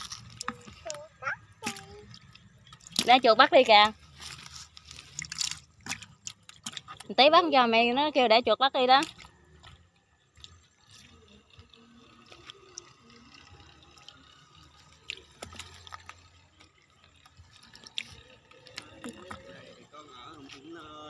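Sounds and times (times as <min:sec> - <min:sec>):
water dripping and splashing: 0:04.3 - 0:07.2, 0:09.0 - 0:11.4, 0:13.9 - 0:19.5.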